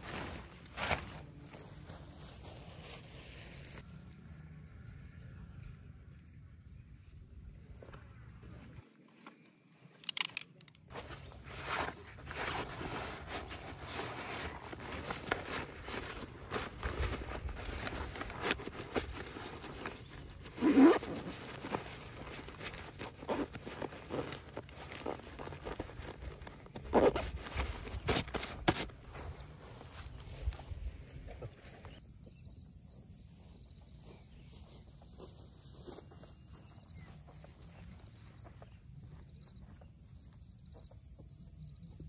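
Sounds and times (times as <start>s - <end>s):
fabric rustling and scraping: 0.0s - 3.8s, 10.9s - 31.9s.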